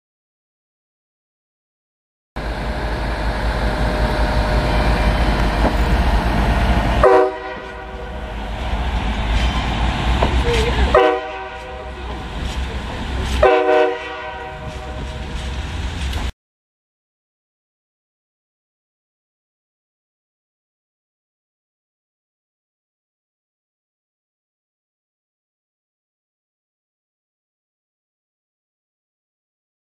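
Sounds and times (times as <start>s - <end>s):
low rumble: 2.4s - 13.5s, 14.1s - 16.3s
train air horn blasts: 7.0s - 8.3s, 10.9s - 12.1s, 13.3s - 15.4s.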